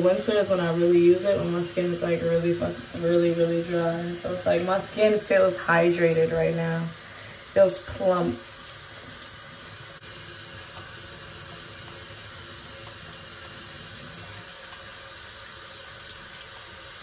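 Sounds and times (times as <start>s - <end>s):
sponge rinsing face: 0.0s - 17.0s
tap running into a sink: 10.6s - 15.0s.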